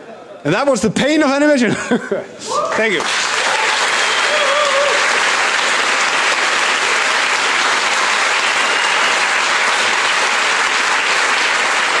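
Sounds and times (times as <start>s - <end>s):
audience applauding: 2.8s - 12.0s.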